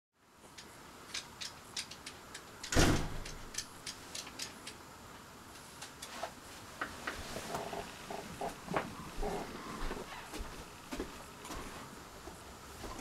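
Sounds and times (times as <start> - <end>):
loud thump: 2.7 - 3.3.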